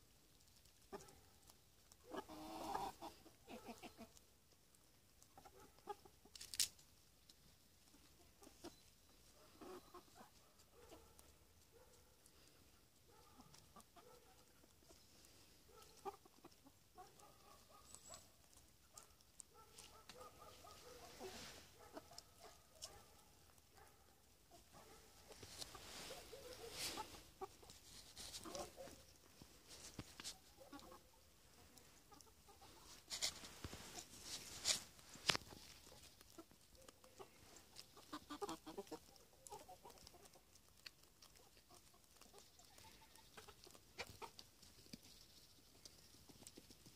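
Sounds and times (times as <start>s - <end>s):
chickens clucking: 0.1s - 46.9s
scratching rustles: 17.4s - 23.2s, 24.6s - 46.9s.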